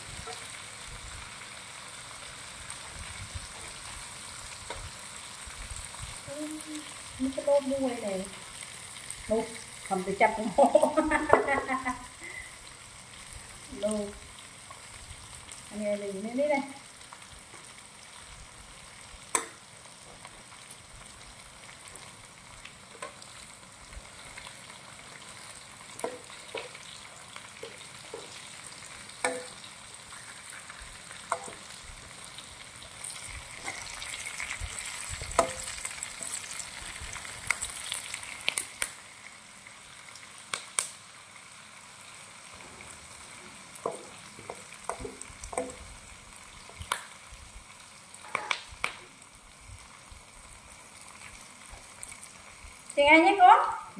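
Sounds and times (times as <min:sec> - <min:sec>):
food sizzling in oil: 0:00.0 - 0:53.9
utensil stirring against pan: 0:25.3 - 0:38.3, 0:42.9 - 0:46.0.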